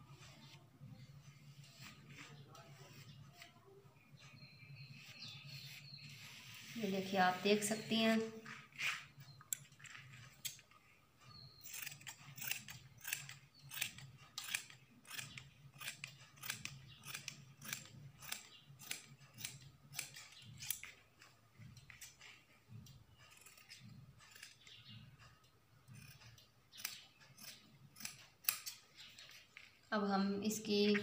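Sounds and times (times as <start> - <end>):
scissors snipping fabric: 11.6 - 21.0, 21.7 - 25.1, 25.8 - 29.4.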